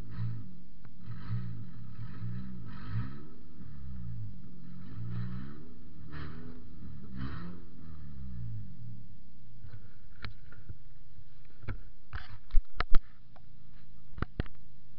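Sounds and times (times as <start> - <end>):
car engine revving: 0.0 - 10.6.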